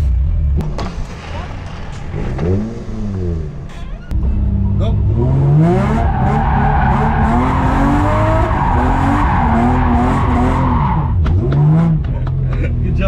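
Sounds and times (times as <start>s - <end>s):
car engine revving: 0.0s - 12.8s
tyres screeching: 0.8s - 4.2s, 5.6s - 11.2s.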